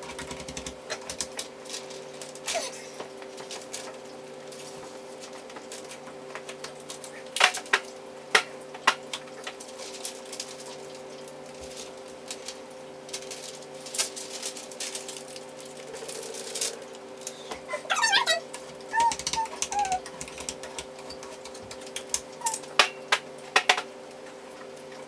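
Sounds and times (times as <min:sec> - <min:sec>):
steady hum: 0:00.0 - 0:25.0
plastic film crinkling: 0:09.3 - 0:17.4.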